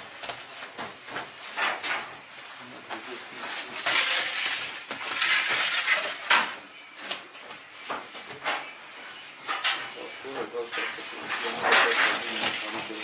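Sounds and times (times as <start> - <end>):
metal kitchenware clattering: 3.8 - 6.9, 8.3 - 13.0.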